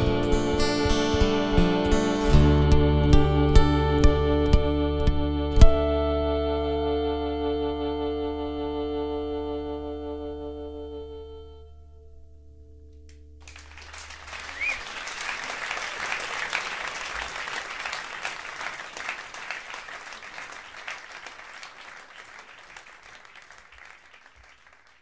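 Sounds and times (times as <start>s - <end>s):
audience applauding: 13.4s - 25.0s.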